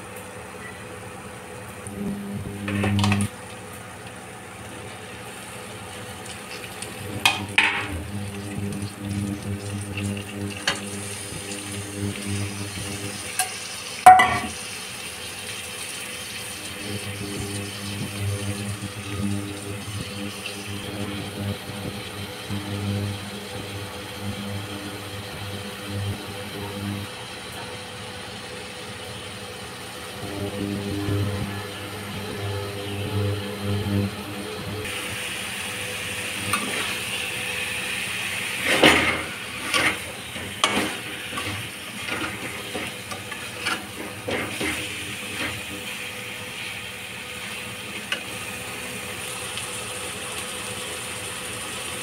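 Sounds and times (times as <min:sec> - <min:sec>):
steady low hum: 0:01.8 - 0:03.4, 0:06.7 - 0:13.5, 0:16.5 - 0:48.8
sharp metal clank: 0:14.1 - 0:14.5
spatula scraping metal pan: 0:38.6 - 0:45.8.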